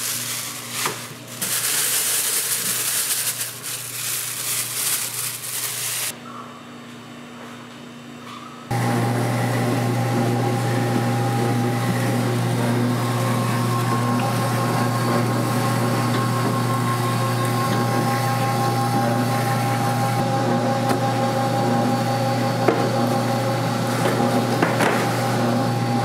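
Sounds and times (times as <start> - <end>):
dough sheeter motor hum: 8.7 - 26.0.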